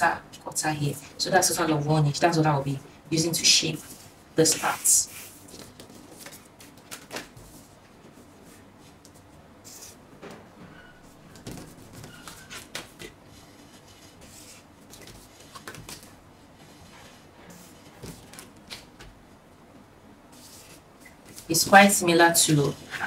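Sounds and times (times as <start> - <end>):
marker drawing on paper: 4.4 - 5.4.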